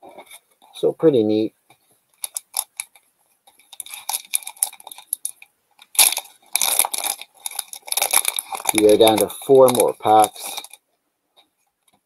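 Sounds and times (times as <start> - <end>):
foil wrapper tearing open: 2.2 - 3.0, 3.6 - 10.8
foil wrapper crinkling: 2.2 - 10.8.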